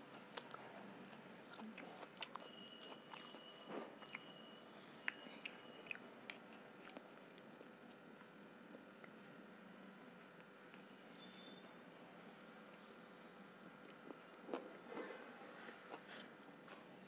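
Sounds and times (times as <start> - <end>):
close chewing: 0.0 - 4.4, 5.0 - 9.3, 13.6 - 17.0.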